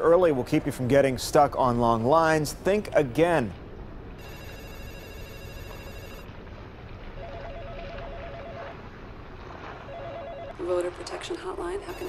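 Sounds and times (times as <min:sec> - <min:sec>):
telephone ringing two-tone trill: 0:04.2 - 0:06.3, 0:07.2 - 0:08.8, 0:09.9 - 0:10.6.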